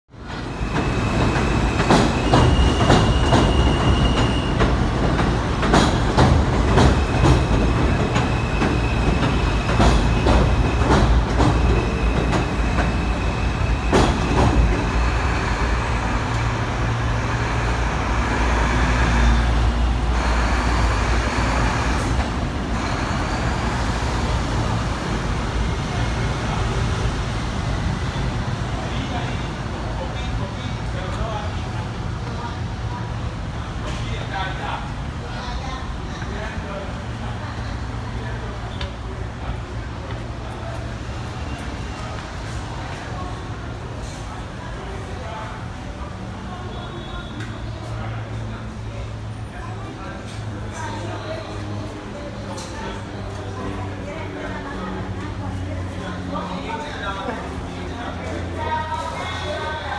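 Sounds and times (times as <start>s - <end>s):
subway train rumbling overhead: 0.1s - 59.9s
high wheel squeal: 0.4s - 5.0s, 7.0s - 15.7s.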